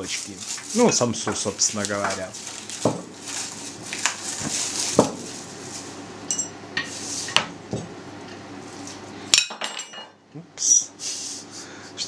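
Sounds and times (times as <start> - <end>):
metal spoon clinking in bowl: 6.3 - 6.6.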